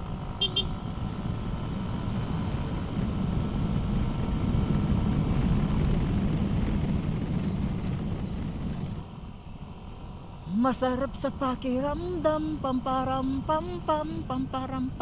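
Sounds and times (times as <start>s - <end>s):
scooter engine droning: 0.0s - 15.0s
wind on microphone: 1.1s - 9.1s.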